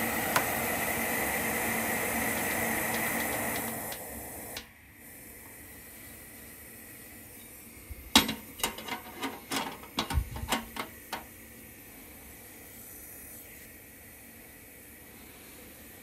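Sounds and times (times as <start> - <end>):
gas burner hissing: 0.0 - 16.0
metal grate clattering on stove: 8.2 - 11.3.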